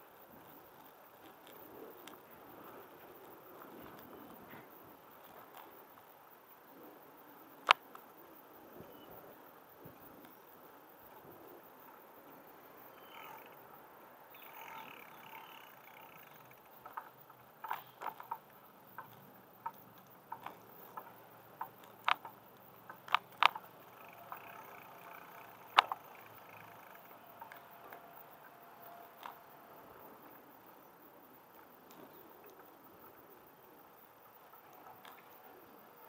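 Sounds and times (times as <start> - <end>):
bicycle rattling over pavement: 12.9 - 30.2.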